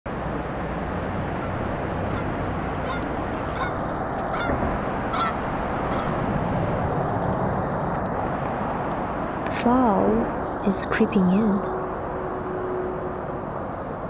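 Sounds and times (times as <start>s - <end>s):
low background rumble: 0.1s - 14.0s
goose honking: 1.4s - 6.2s.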